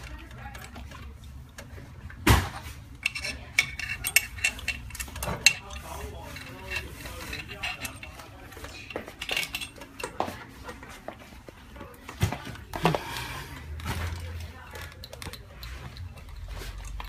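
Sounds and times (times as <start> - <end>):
light metallic clicks and clinks: 3.0 - 10.8, 13.8 - 17.0.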